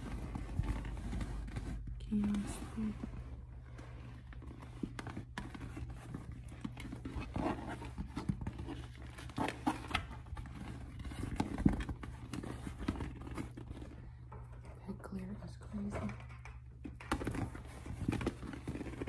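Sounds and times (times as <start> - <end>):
leather bag rustling and creaking: 0.0 - 14.6, 16.9 - 19.0.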